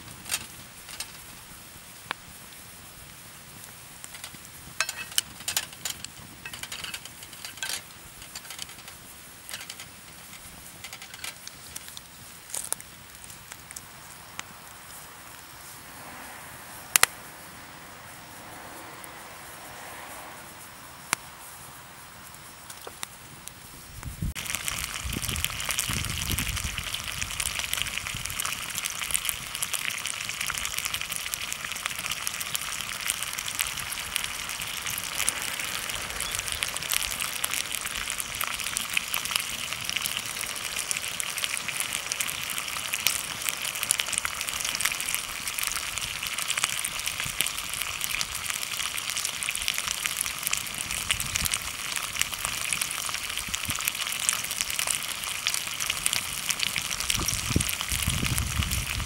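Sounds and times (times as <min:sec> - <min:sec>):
food sizzling in a skillet: 0:00.0 - 0:59.0
pan or utensils knocking: 0:04.8 - 0:08.8.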